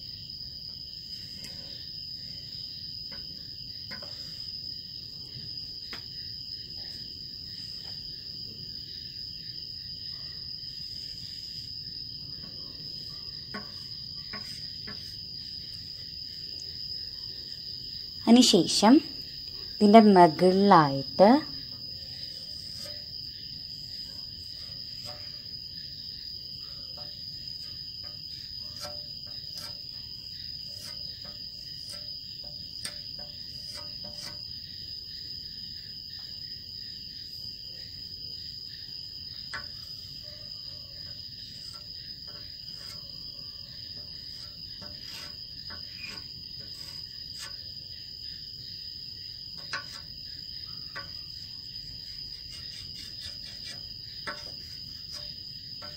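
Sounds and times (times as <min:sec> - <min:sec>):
cricket trilling: 0:00.0 - 0:55.9
chalk ticking on board: 0:52.4 - 0:55.3.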